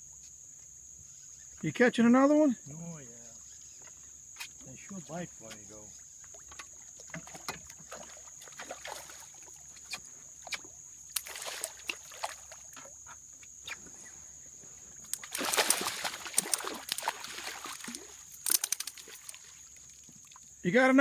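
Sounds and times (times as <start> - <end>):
fish splashing in water: 6.2 - 13.0, 15.0 - 20.6.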